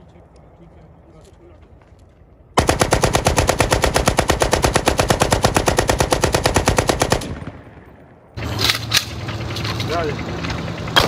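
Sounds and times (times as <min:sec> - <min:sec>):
machine gun automatic burst: 0:02.6 - 0:07.7.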